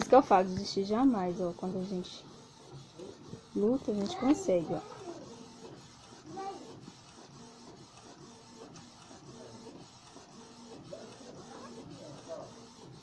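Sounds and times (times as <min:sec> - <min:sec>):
inkjet printer whirring: 0:00.0 - 0:13.0.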